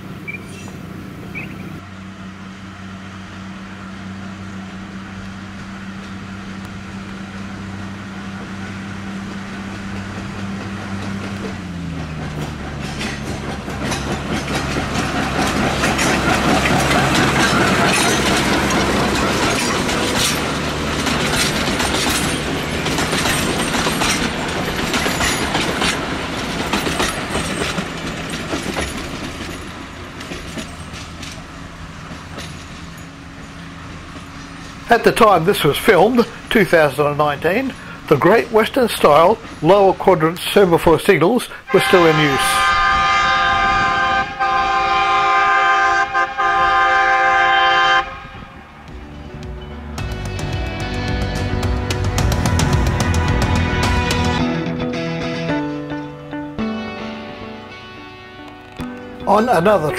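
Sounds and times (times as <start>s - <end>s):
diesel locomotive engine running: 0.0s - 55.0s, 57.3s - 59.9s
train wheels clattering over rails: 4.4s - 44.5s, 48.8s - 54.4s.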